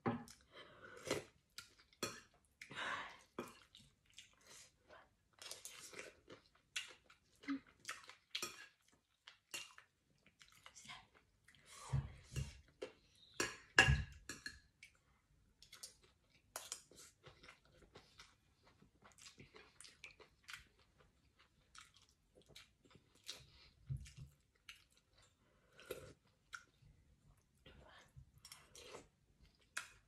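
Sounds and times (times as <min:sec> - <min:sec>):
chewing with wet mouth clicks: 0:05.3 - 0:11.6, 0:15.6 - 0:27.6, 0:28.4 - 0:30.0.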